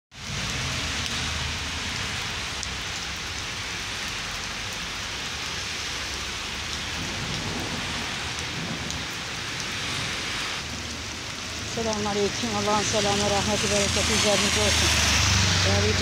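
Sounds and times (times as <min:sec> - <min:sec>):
rain on wet pavement: 0:00.1 - 0:16.0.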